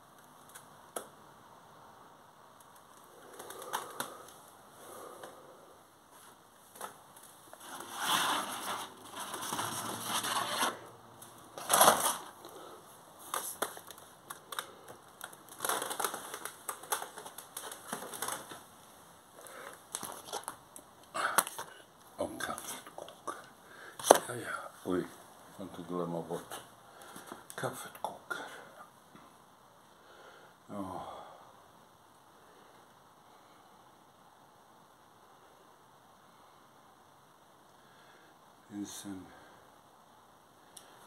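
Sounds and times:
objects rustling and knocking: 6.1s - 18.7s, 19.4s - 20.6s, 24.0s - 24.3s.

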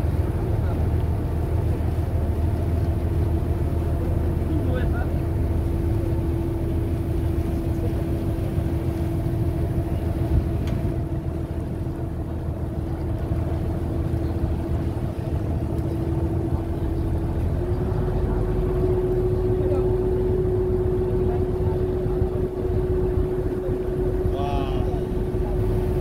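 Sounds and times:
ferry engine rumbling and humming: 0.0s - 26.0s
water wash along hull: 0.0s - 26.0s.

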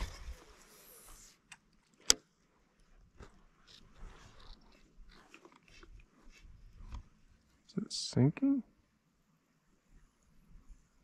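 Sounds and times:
small clicks and rustles: 0.0s - 7.6s.

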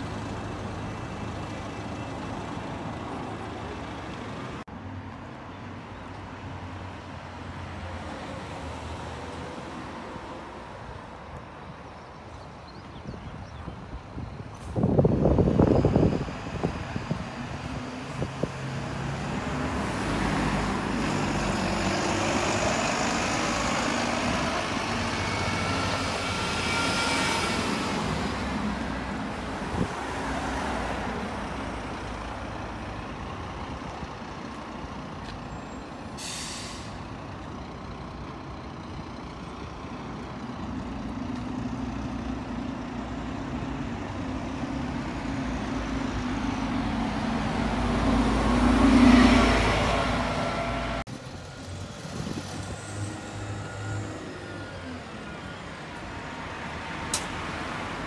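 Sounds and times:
bus engine and gearbox whine: 0.0s - 4.7s, 12.8s - 58.0s
air brake hiss: 36.2s - 37.1s.

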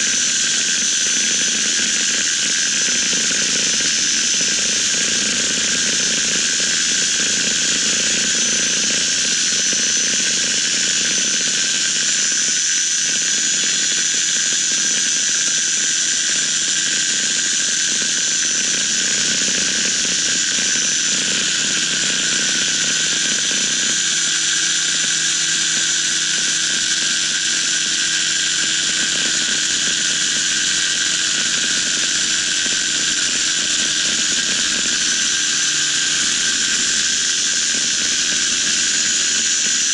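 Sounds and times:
high steady whine: 14.7s - 24.3s.

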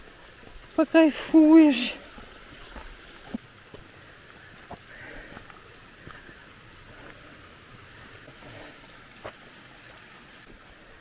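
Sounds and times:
footsteps on stony trail: 0.0s - 7.4s, 8.2s - 9.6s
mountain stream rushing: 0.0s - 11.0s.

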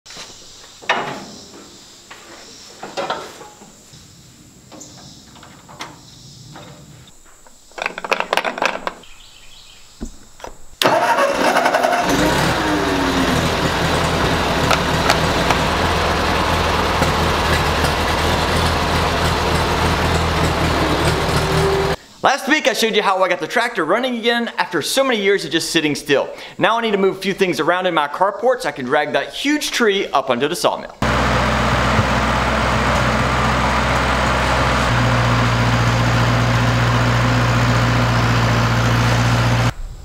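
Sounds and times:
tractor engine cranking and running: 10.4s - 22.0s, 31.0s - 39.7s.

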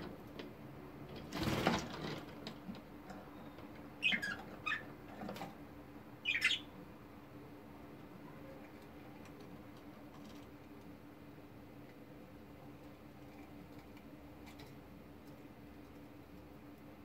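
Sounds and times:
bird wings flapping: 1.2s - 2.3s.

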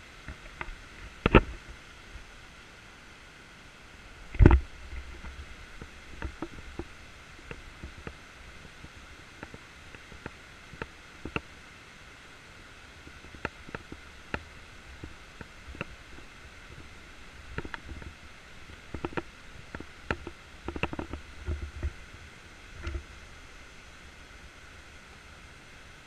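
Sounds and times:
steady low hiss: 0.0s - 26.0s
light clicks and creaks: 0.2s - 1.8s, 4.3s - 11.5s, 13.0s - 23.2s.

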